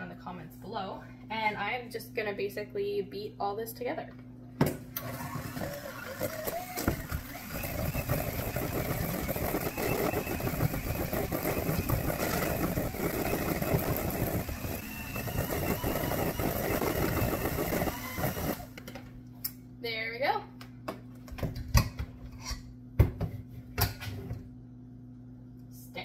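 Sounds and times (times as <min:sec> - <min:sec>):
electric mixer beating dough: 0:05.0 - 0:18.8.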